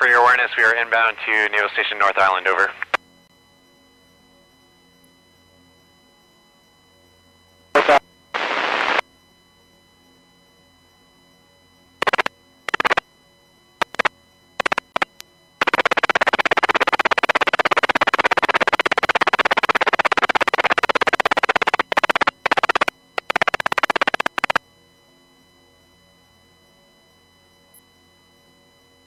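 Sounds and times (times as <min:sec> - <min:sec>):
radio static bursts: 0:00.0 - 0:03.0, 0:07.8 - 0:09.0, 0:12.0 - 0:13.0, 0:13.8 - 0:24.6
faint steady hum: 0:00.0 - 0:29.0.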